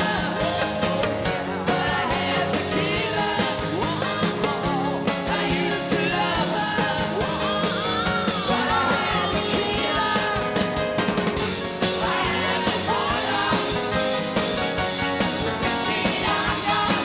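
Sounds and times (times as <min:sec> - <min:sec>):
person singing: 0:00.0 - 0:10.7
drum kit: 0:00.0 - 0:17.0.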